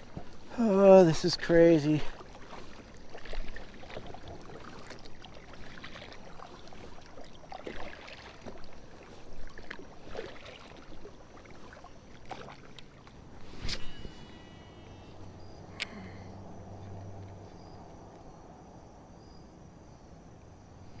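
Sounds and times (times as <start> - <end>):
paddle splashes in water: 0.0 - 14.1.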